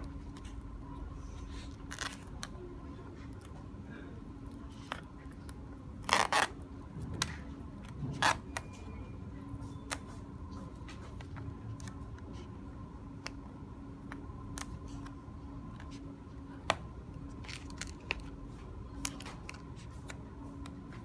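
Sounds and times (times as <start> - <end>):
cable ripping from tape: 1.8 - 2.5, 6.0 - 6.6.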